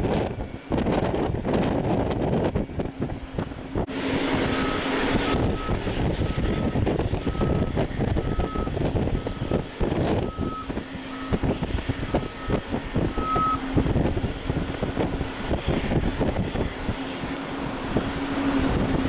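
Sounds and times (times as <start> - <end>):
jet engines rumbling: 0.0 - 19.0
reversing alarm beeping: 4.4 - 13.7.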